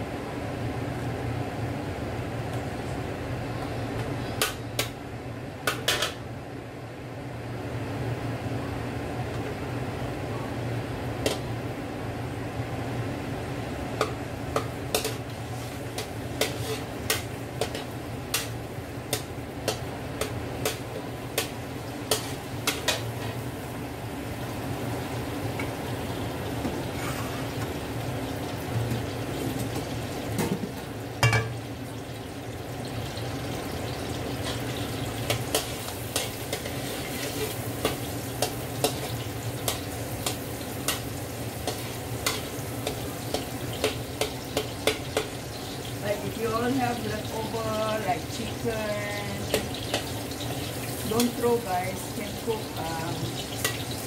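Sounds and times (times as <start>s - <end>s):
garlic sizzling in oil: 12.6s - 54.0s
metal spatula scraping wok: 15.0s - 19.2s, 34.4s - 45.3s.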